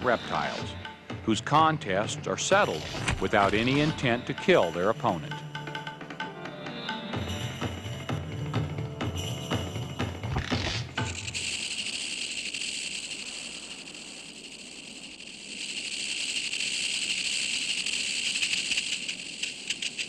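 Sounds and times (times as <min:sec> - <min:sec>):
rattlesnake tail rattle buzzing: 0:00.0 - 0:01.1, 0:02.5 - 0:05.9, 0:10.3 - 0:20.0
drum-led music: 0:00.0 - 0:11.5.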